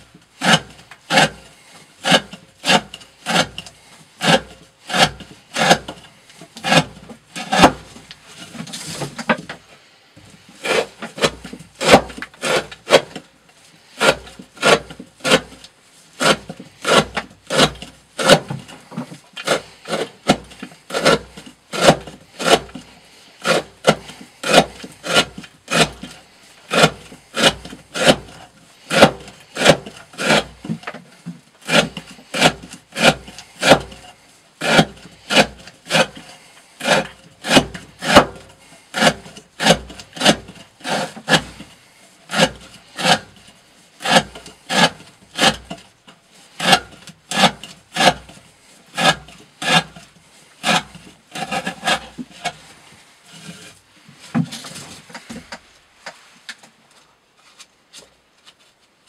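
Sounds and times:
knife scraping wood: 0:00.0 - 0:56.7.

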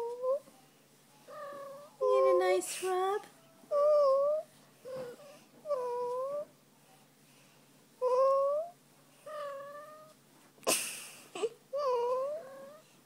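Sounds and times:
cat meowing: 0:01.3 - 0:02.1.

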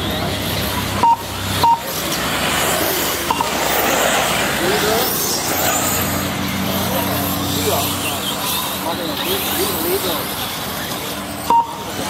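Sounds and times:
electric rc cars running on dirt: 0:00.0 - 0:12.0
short electronic beeps: 0:01.0 - 0:01.9, 0:11.5 - 0:11.8.

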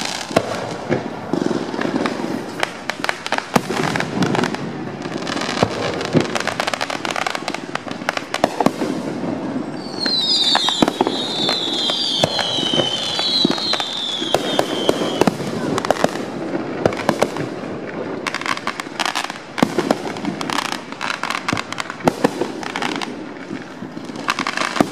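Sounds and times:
fireworks bangs and crackles: 0:00.0 - 0:24.9
high whistles gliding down: 0:09.5 - 0:15.3.

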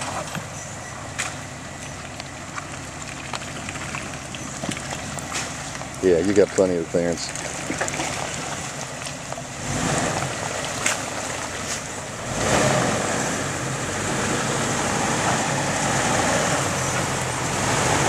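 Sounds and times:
engine running under load: 0:00.0 - 0:18.0.

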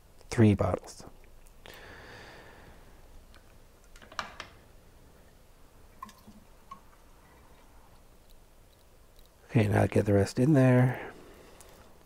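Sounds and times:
liquid pouring: 0:05.8 - 0:08.1.

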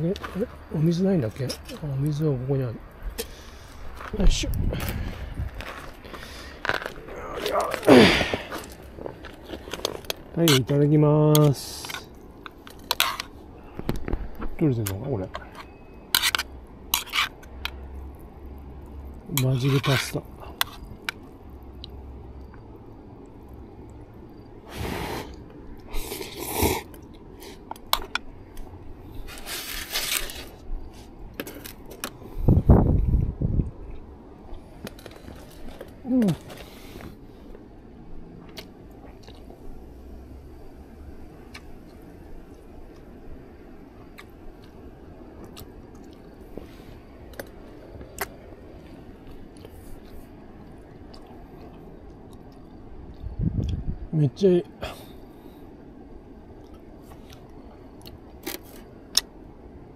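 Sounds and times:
low background noise: 0:00.0 - 0:59.9
utensil scraping metal tin: 0:16.1 - 0:17.4, 0:19.4 - 0:20.8
person chewing: 0:38.4 - 0:39.6, 0:41.5 - 0:43.1, 0:44.0 - 0:44.8, 0:45.4 - 0:46.7, 0:47.3 - 0:53.8, 0:56.5 - 0:59.3.

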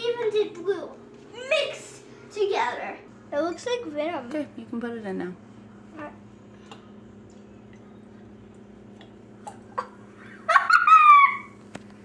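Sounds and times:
steady low hum: 0:00.0 - 0:12.0
child squealing: 0:10.8 - 0:11.6.

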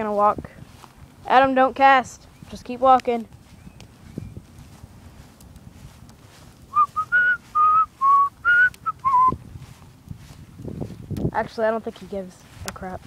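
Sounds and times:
person whistling a tune: 0:06.7 - 0:09.4.

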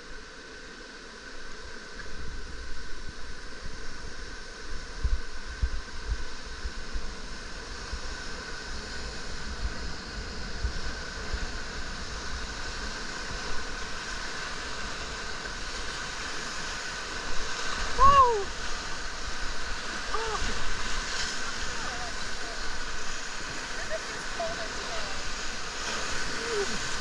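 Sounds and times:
rushing whitewater: 0:00.1 - 0:27.0.

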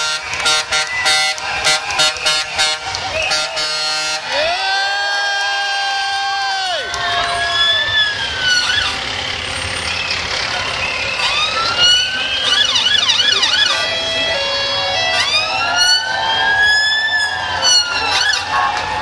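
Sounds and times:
emergency sirens wailing: 0:00.0 - 0:19.0
siren yelp: 0:04.3 - 0:09.0, 0:10.6 - 0:19.0.

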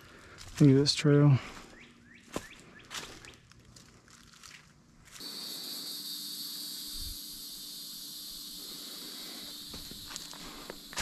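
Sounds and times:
footsteps on dry leaves: 0:00.0 - 0:05.4, 0:09.3 - 0:11.0
high-pitched buzzing hiss: 0:05.1 - 0:11.0.

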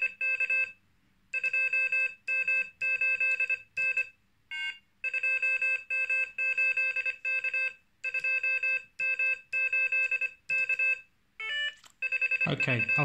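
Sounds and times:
morse code beeping: 0:01.4 - 0:13.0.

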